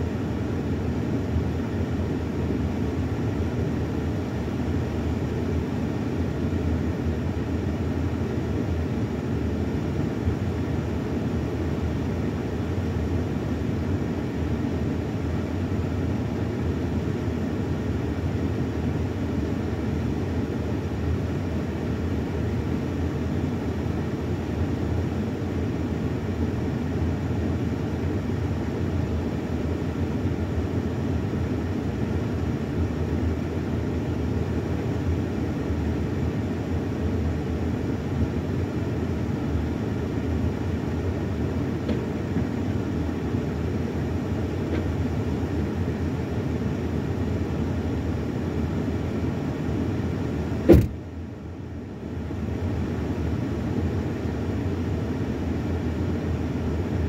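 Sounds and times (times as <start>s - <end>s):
van engine rumbling: 34.0s - 51.1s.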